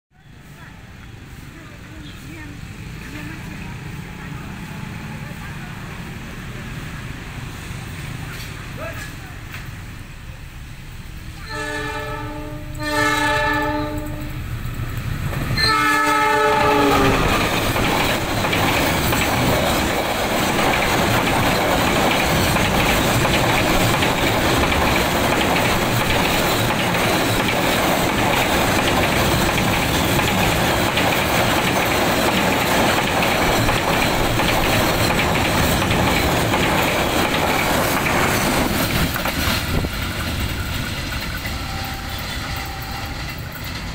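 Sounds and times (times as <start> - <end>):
freight wagons rumbling over rails: 0.2 - 43.9
locomotive horn blasts: 11.4 - 14.4, 15.6 - 17.3, 41.6 - 43.2.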